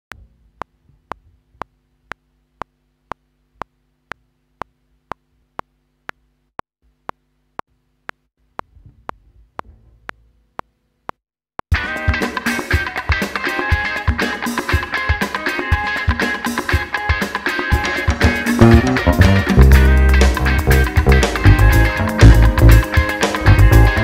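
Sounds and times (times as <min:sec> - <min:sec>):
low steady hum: 0:00.1 - 0:11.1
metronome ticking: 0:18.6 - 0:22.8.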